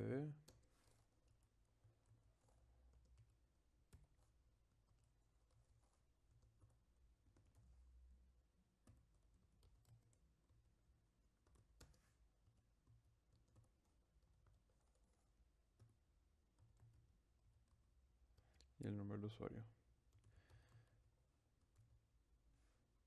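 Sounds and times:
computer keyboard typing: 0:00.4 - 0:07.9, 0:08.8 - 0:18.0, 0:20.1 - 0:21.0.

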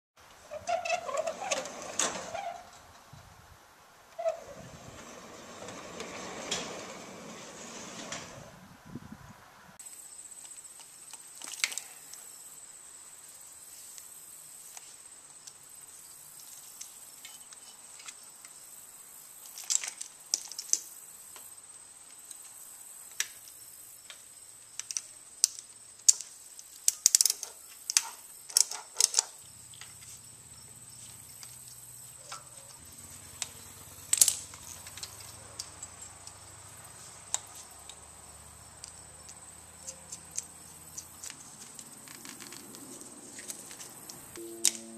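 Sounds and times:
plastic connectors clicking: 0:24.8 - 0:29.3
faint high whine: 0:44.2 - 0:44.9
low hum: 0:44.3 - 0:44.9.

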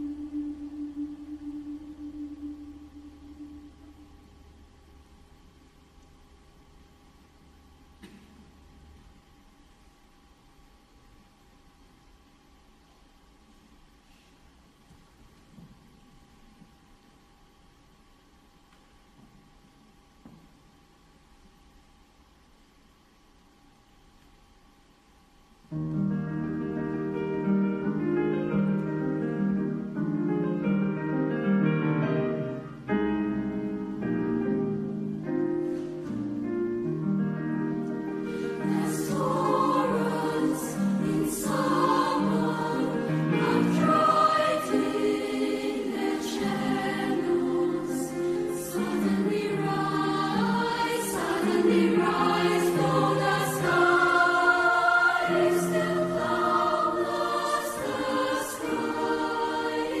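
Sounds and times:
choir singing: 0:00.0 - 0:04.0, 0:38.2 - 1:00.0.

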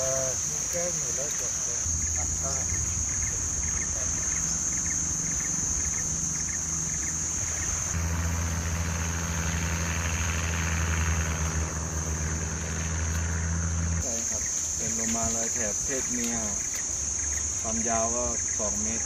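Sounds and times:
motorboat engine humming: 0:00.0 - 0:15.4
high-pitched insect trill: 0:00.0 - 0:19.0.

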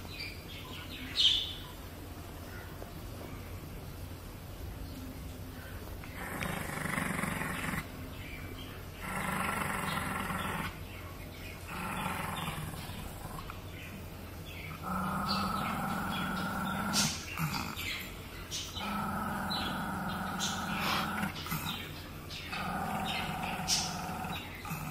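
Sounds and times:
dog growling: 0:06.0 - 0:08.0, 0:08.9 - 0:10.8, 0:11.5 - 0:13.8, 0:14.5 - 0:24.9.

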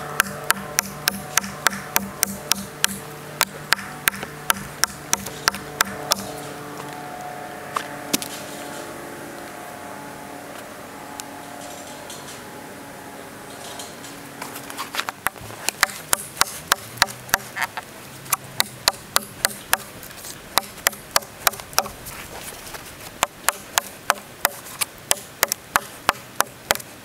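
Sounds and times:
knife chopping into log: 0:15.3 - 0:17.5.

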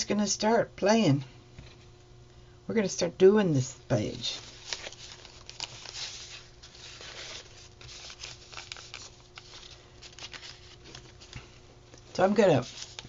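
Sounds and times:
faint steady hum: 0:00.0 - 0:13.0
paper and fabric rustling: 0:04.2 - 0:11.5, 0:12.2 - 0:13.0.

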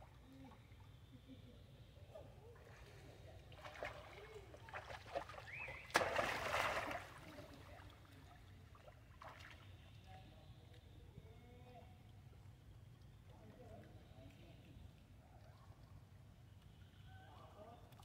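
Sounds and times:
water lapping and trickling: 0:00.0 - 0:18.0
monkeys splashing in water: 0:03.4 - 0:08.1.

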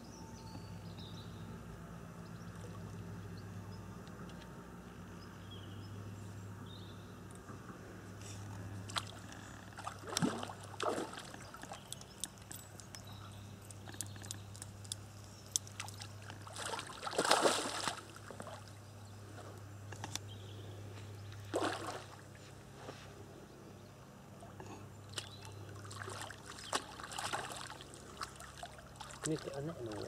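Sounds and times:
fish splashing and thrashing: 0:08.8 - 0:12.5, 0:15.6 - 0:18.7, 0:21.5 - 0:22.3, 0:25.1 - 0:30.0.

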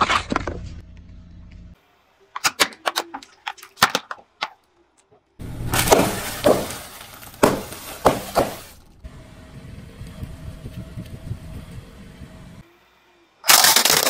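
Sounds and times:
plastic bags bursting under tyre: 0:05.4 - 0:08.9, 0:13.5 - 0:14.0
dense crackling of crumbly block: 0:05.6 - 0:08.8.

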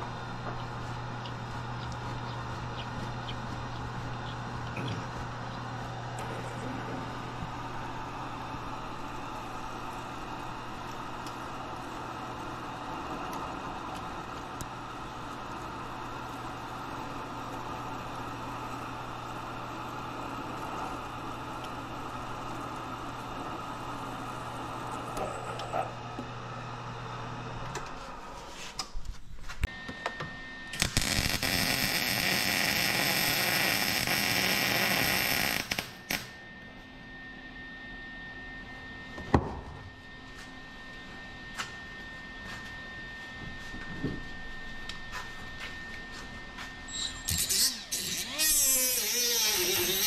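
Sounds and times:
drill motor hum: 0:00.0 - 0:27.6, 0:30.7 - 0:36.3, 0:46.9 - 0:50.0
welding arc: 0:30.7 - 0:36.4, 0:47.1 - 0:50.0
angle grinder grinding metal: 0:46.9 - 0:50.0.

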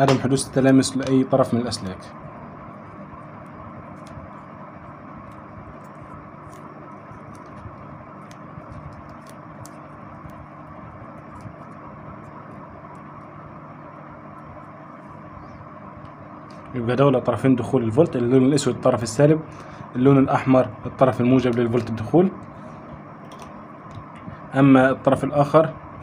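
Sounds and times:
background rumble and hiss: 0:00.0 - 0:26.0
faint hum: 0:00.0 - 0:26.0
faint clicks and rustles: 0:02.8 - 0:13.3.

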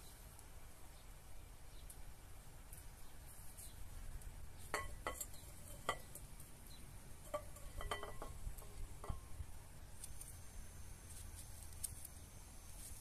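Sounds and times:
plate and glass bowl clinking: 0:04.7 - 0:06.2, 0:07.2 - 0:09.4.

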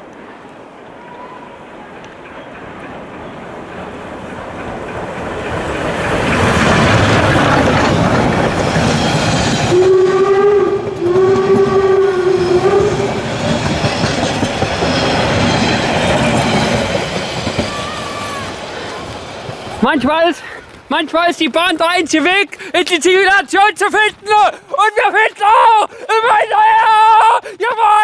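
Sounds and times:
train wheels clattering: 0:01.8 - 0:20.8
steam train whistle: 0:09.6 - 0:13.5.

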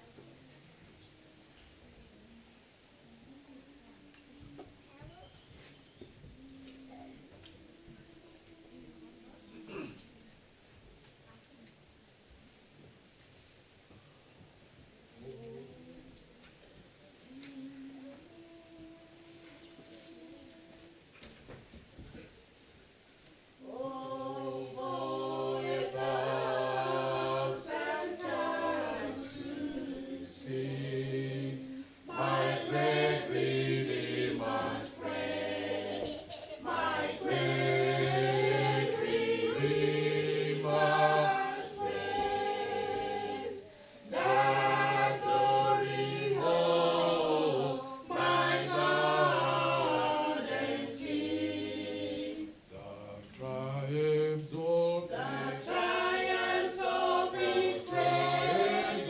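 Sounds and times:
group singing a hymn a cappella: 0:06.0 - 0:10.0, 0:15.2 - 0:21.6, 0:23.6 - 0:59.0.

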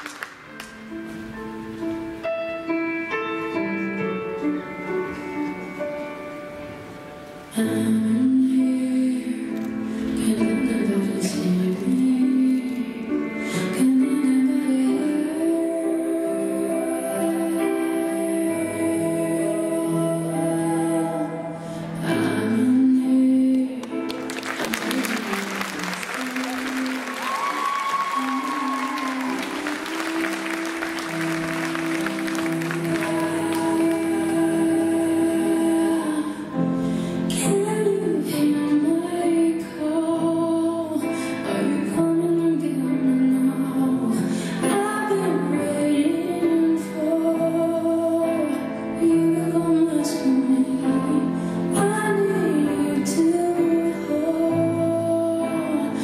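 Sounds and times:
applause: 0:00.0 - 0:00.8, 0:23.8 - 0:34.5
slow melodic music: 0:00.0 - 0:56.0.

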